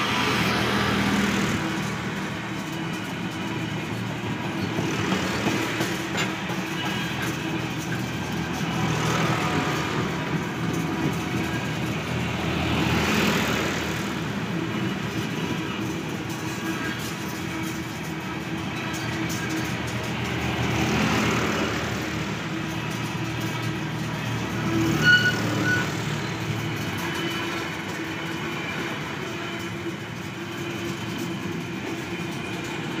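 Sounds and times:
freight train wheels rumbling: 0:00.0 - 0:33.0
high-pitched squeal: 0:24.6 - 0:33.0.

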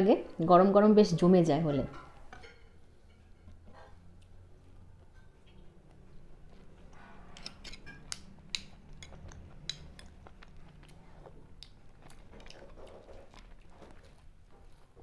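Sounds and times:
chewing crisp toasted bread: 0:03.0 - 0:15.0
spoon clinking and scraping in bowl: 0:07.1 - 0:10.1.

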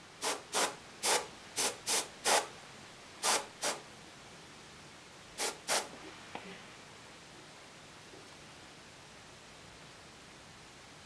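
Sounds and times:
airbrush hissing puffs: 0:00.2 - 0:02.5, 0:03.2 - 0:03.8, 0:05.4 - 0:06.1.

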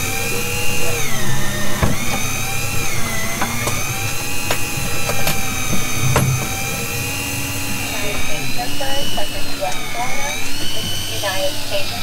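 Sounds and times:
low hum: 0:00.0 - 0:11.9
motor whine: 0:00.0 - 0:12.0
sharp knocks: 0:04.5 - 0:06.9.

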